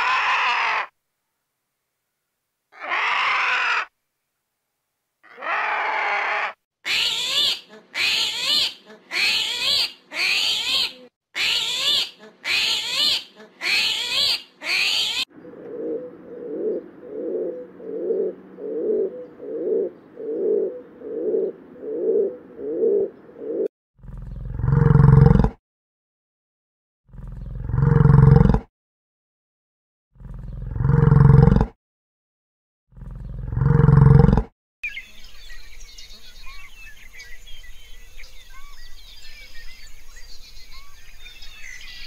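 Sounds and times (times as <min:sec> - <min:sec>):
short animal calls: 0:02.7 - 0:03.9, 0:05.2 - 0:23.1
low pulsing animal calls: 0:05.2 - 0:25.5, 0:27.1 - 0:28.6.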